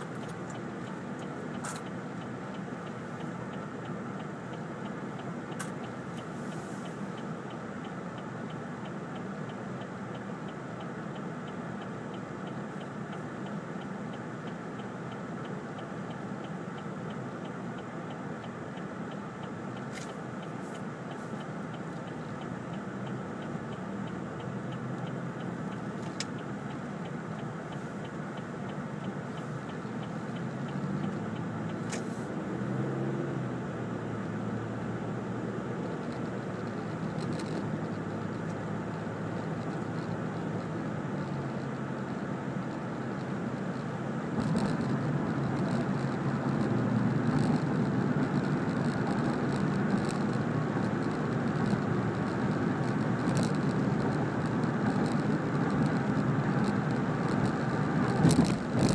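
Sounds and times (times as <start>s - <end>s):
car engine and cabin hum: 0.0s - 58.9s
faint regular ticking: 0.0s - 58.9s
sharp click: 31.7s - 32.1s.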